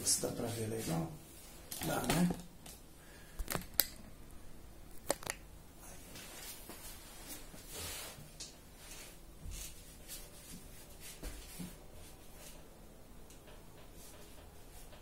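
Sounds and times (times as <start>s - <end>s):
brush rustling on cloth: 0.3s - 1.6s, 6.2s - 12.6s.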